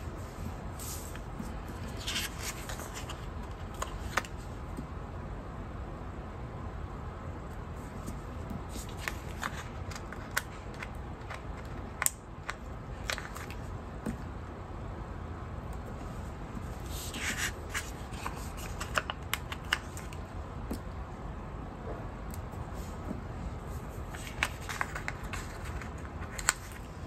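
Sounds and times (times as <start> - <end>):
paper sheet crinkling: 0.4 - 4.4, 8.7 - 13.7, 16.8 - 20.2, 23.8 - 27.0.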